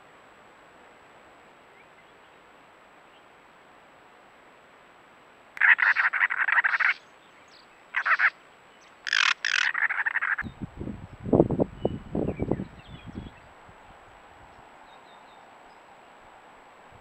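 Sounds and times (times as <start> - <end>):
wren rasping chatter: 5.6 - 7.0, 8.0 - 8.3, 9.1 - 10.4.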